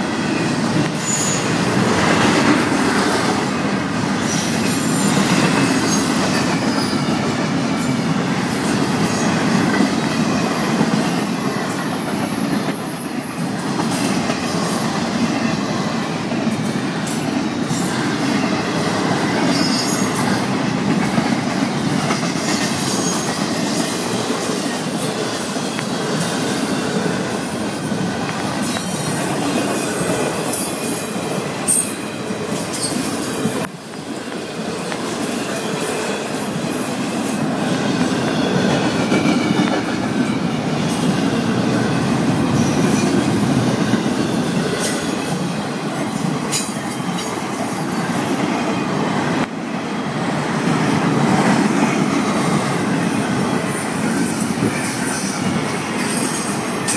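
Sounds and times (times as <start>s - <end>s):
freight train wheels rumbling on rail: 0.0s - 56.9s
high wheel squeals: 0.8s - 1.7s, 2.7s - 14.1s, 19.4s - 20.5s, 52.4s - 56.9s.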